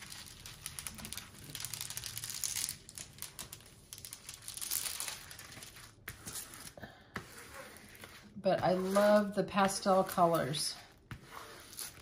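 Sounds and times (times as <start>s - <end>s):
plastic crinkling and rustling: 0.0s - 6.0s.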